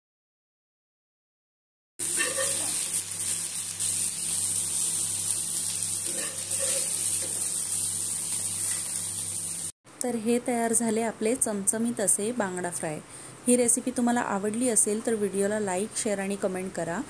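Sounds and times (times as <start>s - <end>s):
oil sizzling under frying fish: 2.0s - 9.8s.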